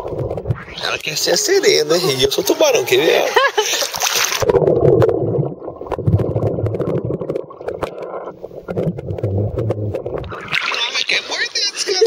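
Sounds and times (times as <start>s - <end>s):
underwater gurgling and bubbles: 0.0s - 0.8s, 3.9s - 11.5s
small underwater clicks: 6.7s - 10.4s.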